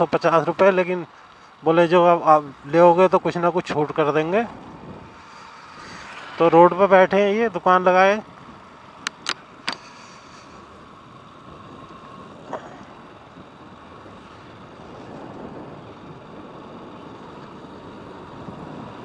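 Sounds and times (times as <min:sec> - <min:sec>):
motorbike engine: 0:00.0 - 0:19.0
wind on microphone: 0:03.8 - 0:07.2, 0:10.7 - 0:19.0.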